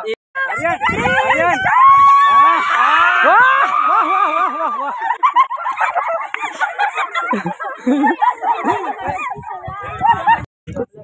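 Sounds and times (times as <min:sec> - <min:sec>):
group shouting and cheering: 0:00.0 - 0:10.4
long high held shout: 0:00.4 - 0:04.9.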